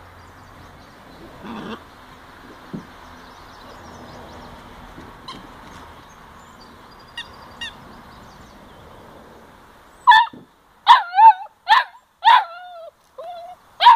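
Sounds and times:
puppy yelping: 1.4 - 1.8, 10.1 - 13.9.

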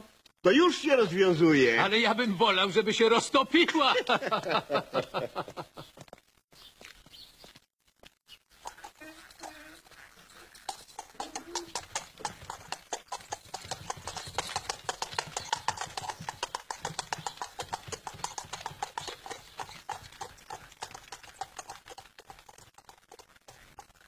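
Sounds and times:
horse hooves clip-clopping on road: 8.5 - 24.0.

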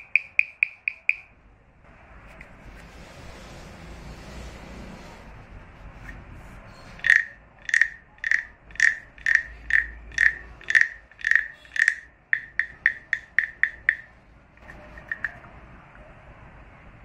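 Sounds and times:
wooden frog guiro croaking rasp: 0.0 - 1.2, 4.6 - 15.5.

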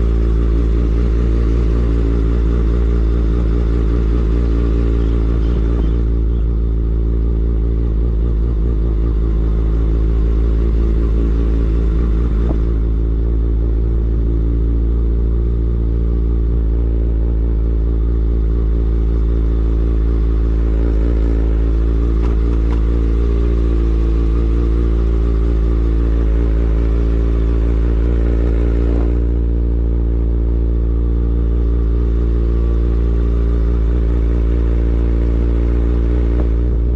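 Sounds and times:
motorcycle engine running: 0.0 - 36.9.

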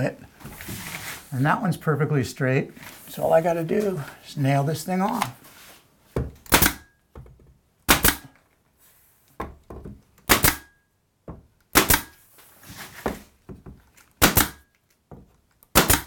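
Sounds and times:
nail gun shots: 6.4 - 6.9, 7.9 - 8.4, 10.2 - 10.8, 11.7 - 12.2, 14.2 - 14.7, 15.7 - 16.0.

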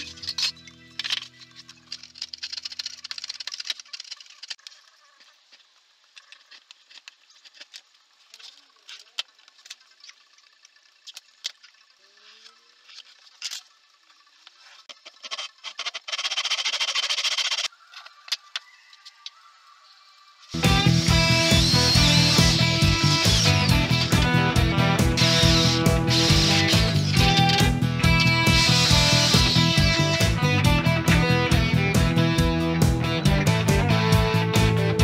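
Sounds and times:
chisel scraping wood: 15.2 - 17.7
rasping noise: 15.2 - 17.7, 20.6 - 30.7.

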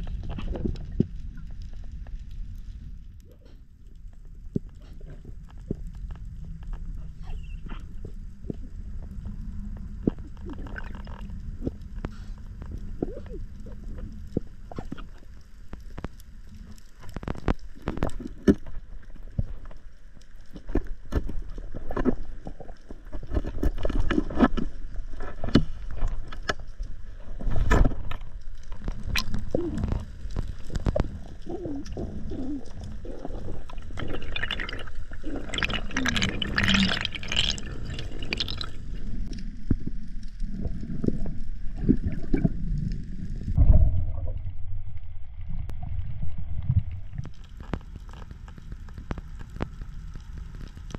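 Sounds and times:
water gurgling underwater: 4.4 - 15.4, 27.3 - 50.9
hissing water: 29.0 - 39.6.

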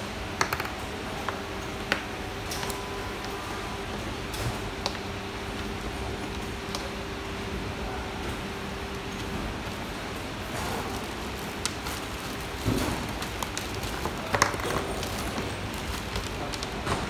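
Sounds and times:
steady background hum: 0.0 - 17.0
plastic lamp holders knocking: 0.4 - 0.7.

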